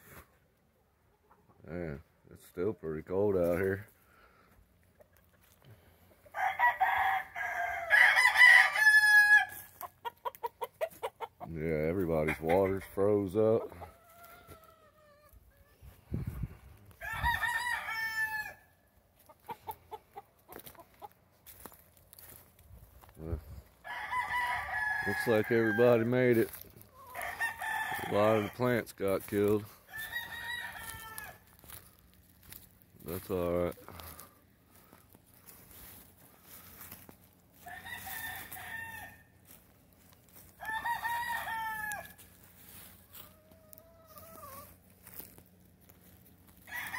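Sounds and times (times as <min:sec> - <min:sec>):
rooster crowing: 0:06.3 - 0:09.7, 0:17.0 - 0:18.7, 0:23.8 - 0:25.8, 0:27.0 - 0:28.6, 0:29.9 - 0:31.5, 0:37.6 - 0:39.3, 0:40.5 - 0:42.2, 0:46.6 - 0:46.9
short clucks: 0:09.8 - 0:11.5.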